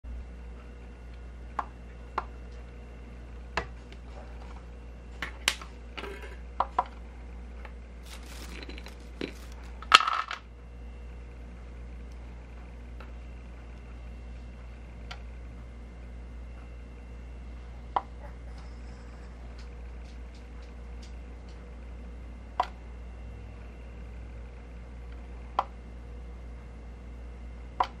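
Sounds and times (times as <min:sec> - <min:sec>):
treats dropping into bowl: 0:08.1 - 0:10.4.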